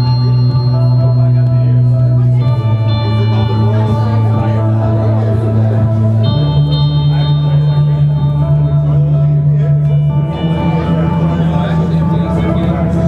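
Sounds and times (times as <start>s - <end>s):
electric guitar through effects: 0.0s - 13.0s.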